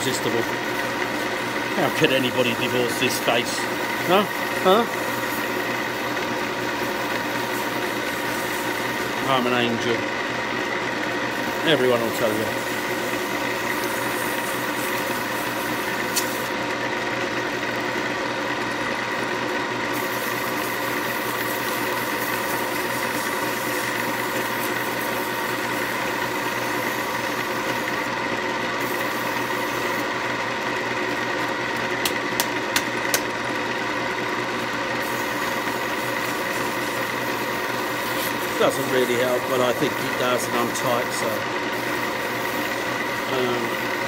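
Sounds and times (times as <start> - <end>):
wood lathe motor humming: 0.0 - 44.0
hand sanding: 35.0 - 42.7.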